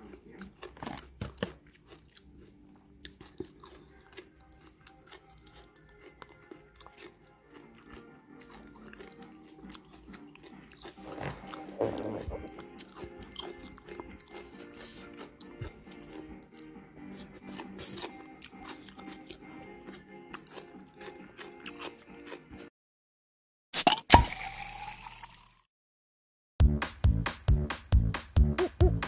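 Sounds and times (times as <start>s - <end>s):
crunchy chewing of food: 0.0s - 22.7s
soft background music: 0.0s - 22.7s.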